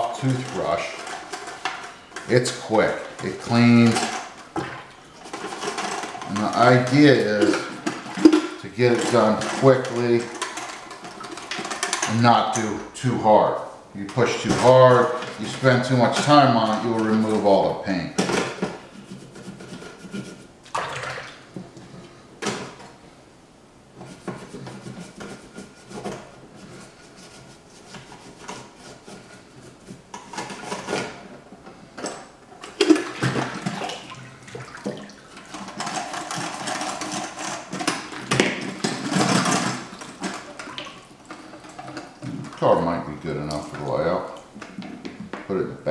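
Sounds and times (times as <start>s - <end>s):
toothbrush scrubbing metal: 24.0s - 30.1s.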